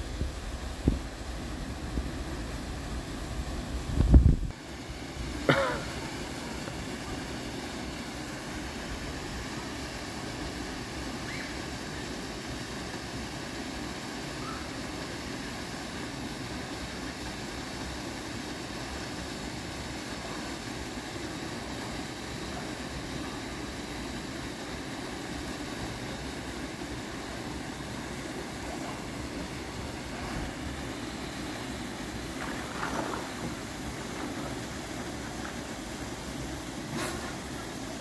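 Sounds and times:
small waterfall rushing: 0.0s - 38.0s
cough-like vocal sound: 5.4s - 6.0s.

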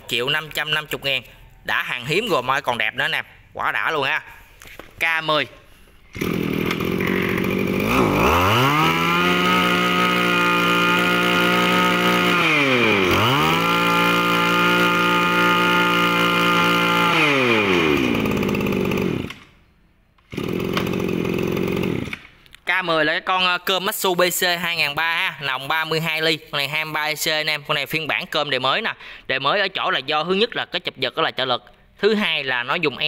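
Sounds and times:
brush cutter engine revving: 6.1s - 19.5s, 20.2s - 22.3s.

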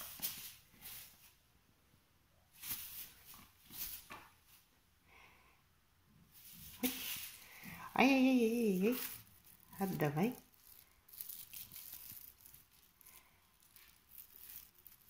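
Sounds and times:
kitten scuffing on tiled floor: 0.0s - 1.4s, 2.6s - 4.6s, 6.3s - 7.4s.

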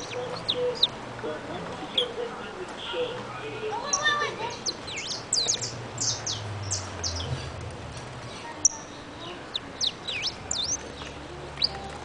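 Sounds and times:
low city background rumble: 0.0s - 12.0s
finch singing sharp chirps: 3.9s - 7.3s, 8.6s - 11.8s.

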